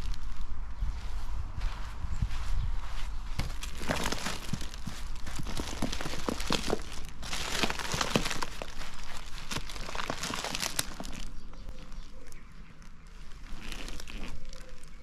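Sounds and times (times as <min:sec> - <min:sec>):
cellophane crinkling: 0:03.4 - 0:12.4, 0:13.3 - 0:15.0.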